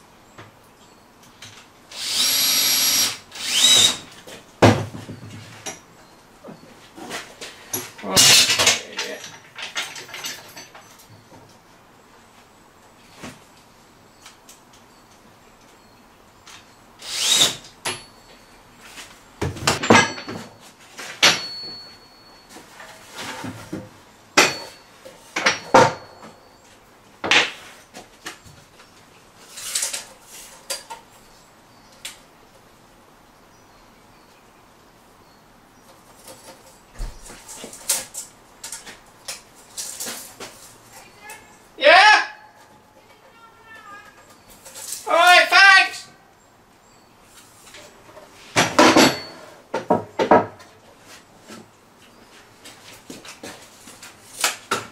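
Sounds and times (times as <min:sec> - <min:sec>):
wood and metal knocks and clatters: 0:04.2 - 0:05.9, 0:07.0 - 0:11.5, 0:19.4 - 0:21.9, 0:48.1 - 0:50.7.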